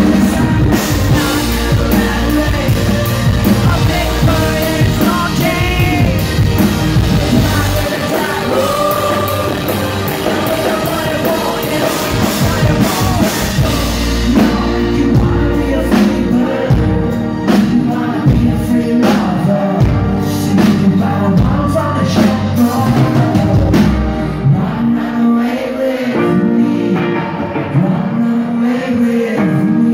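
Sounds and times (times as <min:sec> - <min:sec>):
drums: 0:00.0 - 0:29.9
electric guitar: 0:00.0 - 0:29.9
keyboard: 0:00.0 - 0:29.9
man and woman singing: 0:00.0 - 0:29.9.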